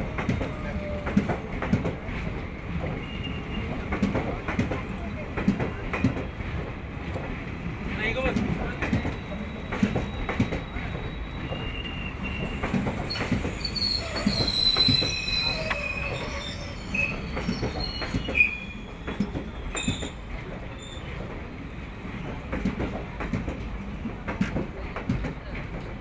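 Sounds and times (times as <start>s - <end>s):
high-pitched wheel squeal: 9.2s - 20.2s.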